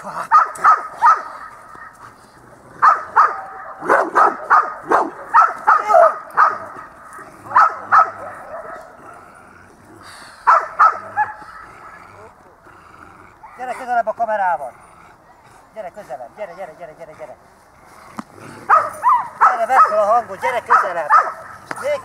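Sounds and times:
dog barking: 0.3s - 2.0s, 2.8s - 9.0s, 10.4s - 11.7s, 18.7s - 22.0s.

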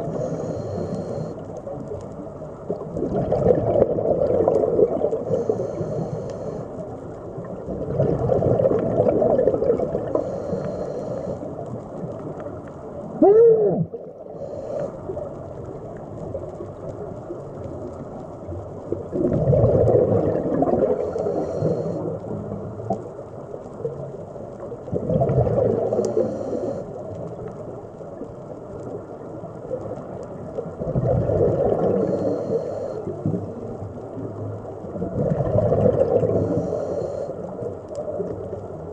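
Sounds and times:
regulator breathing bubbles: 3.0s - 6.7s, 19.1s - 22.2s, 30.8s - 33.5s, 35.1s - 37.5s.

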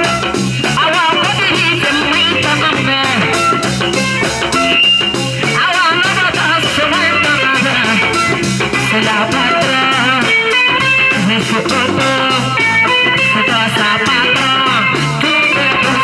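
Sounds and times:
woman singing into a microphone: 0.0s - 3.7s, 5.4s - 16.0s
live band music: 0.0s - 16.0s.

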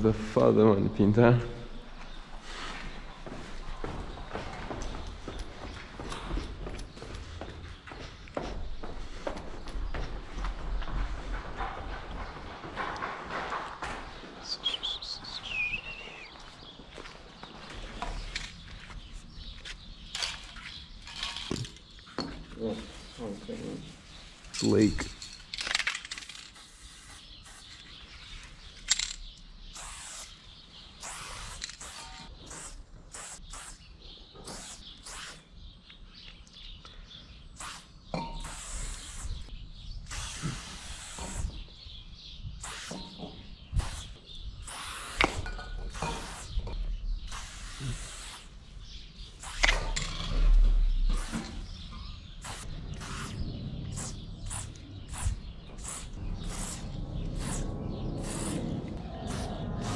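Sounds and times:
spray paint can hissing: 26.3s - 27.9s, 29.7s - 30.4s, 31.0s - 33.8s, 34.4s - 35.4s, 37.6s - 39.4s, 40.1s - 41.6s, 42.6s - 43.0s, 43.8s - 46.6s, 47.3s - 48.5s, 49.3s - 50.1s, 51.1s - 51.6s, 52.4s - 59.9s
low rumble: 52.7s - 59.9s.

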